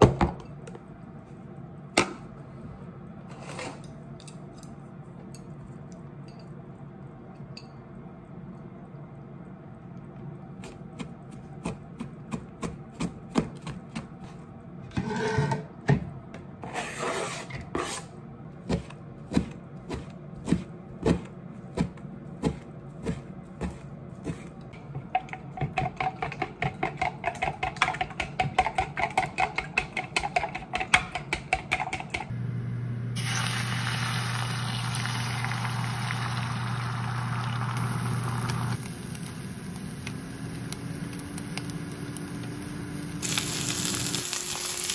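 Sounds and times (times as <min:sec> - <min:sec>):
knife chopping on cutting board: 0:10.7 - 0:14.3, 0:18.6 - 0:24.5
chopsticks beating eggs in bowl: 0:21.8 - 0:32.3
egg sizzling in pan: 0:33.2 - 0:44.9.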